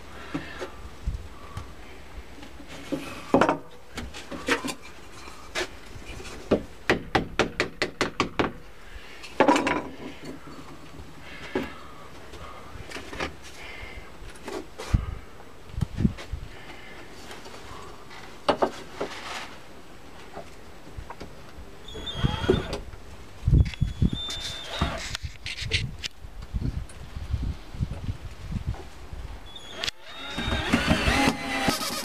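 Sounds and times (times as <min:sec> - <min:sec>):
wooden parts and tools clattering: 0:02.4 - 0:06.6, 0:09.3 - 0:11.8.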